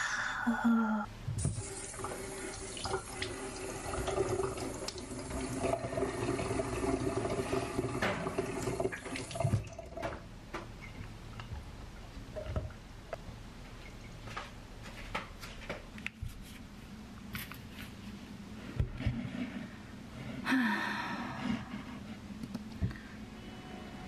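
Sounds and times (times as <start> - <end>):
tap water into metal sink: 7.9 - 10.2.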